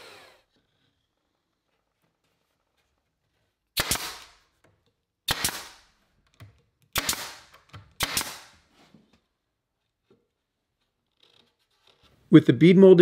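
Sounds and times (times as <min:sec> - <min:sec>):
nail gun firing: 0:03.8 - 0:04.4, 0:05.3 - 0:05.9, 0:06.9 - 0:08.6.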